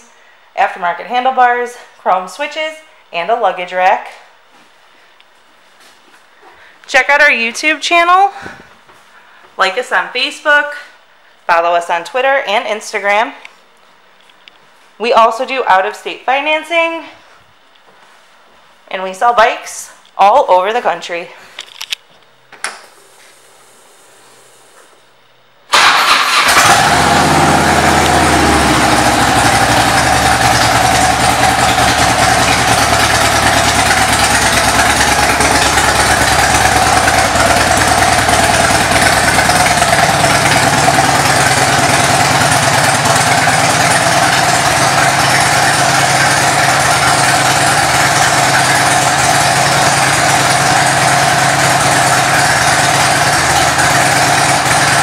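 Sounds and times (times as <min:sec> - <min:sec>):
motorcycle engine idling: 0:25.7 - 0:55.0.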